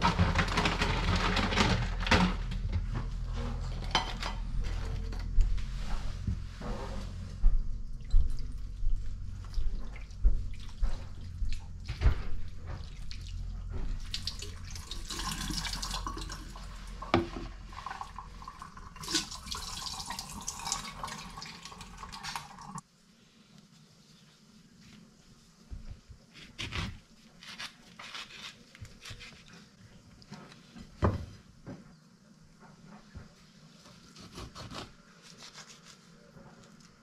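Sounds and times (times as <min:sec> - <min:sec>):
dishes knocking and clinking: 0:00.0 - 0:04.6
kitchen tap running into sink: 0:14.0 - 0:22.8.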